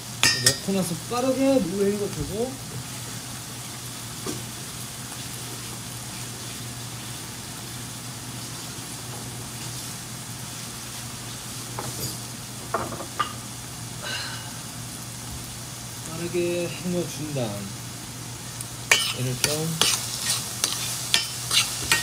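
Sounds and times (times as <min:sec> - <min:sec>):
food sizzling in frying pan: 0:00.0 - 0:22.0.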